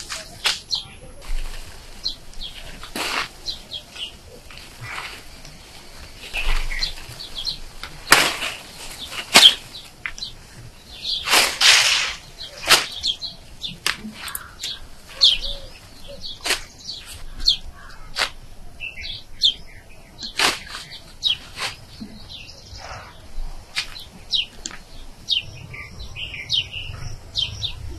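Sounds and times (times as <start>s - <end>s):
stems snapping: 0.0s - 1.6s, 2.3s - 10.4s, 11.2s - 15.5s, 16.3s - 18.5s, 20.2s - 22.9s, 23.7s - 24.9s
leafy branches rustling: 0.0s - 27.9s
small birds chirping: 0.0s - 27.9s.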